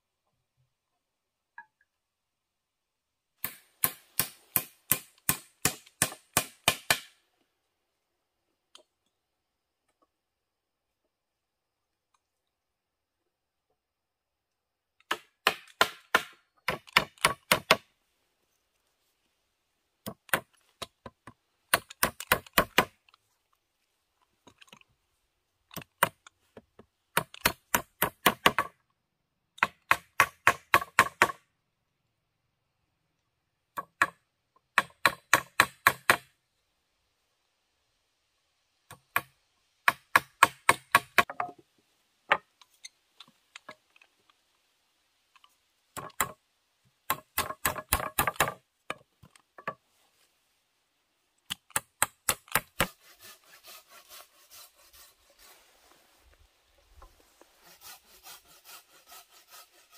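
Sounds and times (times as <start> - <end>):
blade chopping bamboo: 3.4 - 7.2, 15.0 - 17.9.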